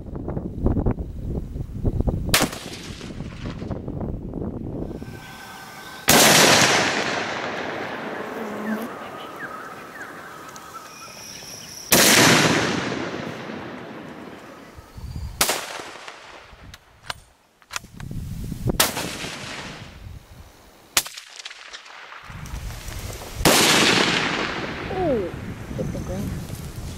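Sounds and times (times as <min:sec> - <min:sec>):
rifle shots echoing: 0:02.4 - 0:03.5, 0:06.0 - 0:08.4, 0:11.9 - 0:14.7, 0:15.4 - 0:16.4, 0:23.5 - 0:24.8.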